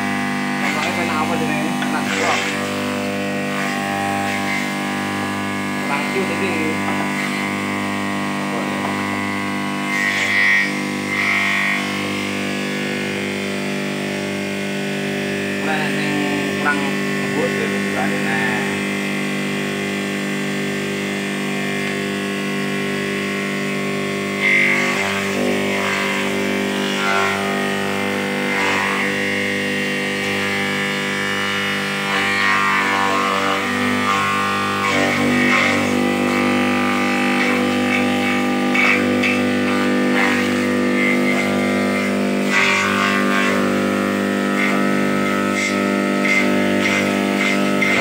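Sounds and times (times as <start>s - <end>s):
electric motor humming: 0.0s - 48.0s
blade cutting leaves: 0.6s - 4.7s, 32.1s - 48.0s.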